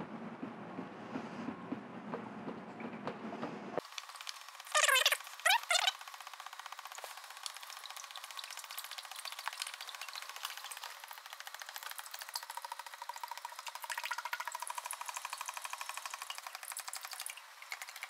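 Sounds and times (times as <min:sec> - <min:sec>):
oil pouring onto gears: 0:06.7 - 0:18.0.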